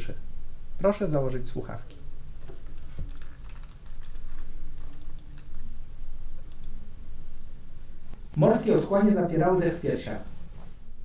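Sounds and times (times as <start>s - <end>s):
mouse and keyboard clicking: 2.4s - 5.6s.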